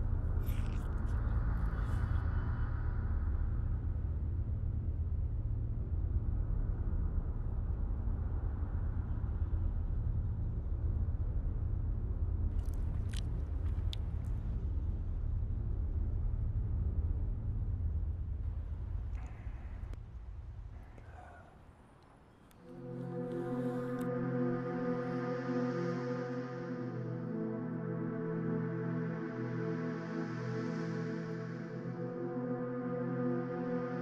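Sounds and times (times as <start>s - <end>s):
steady low rumble: 0.0s - 24.1s.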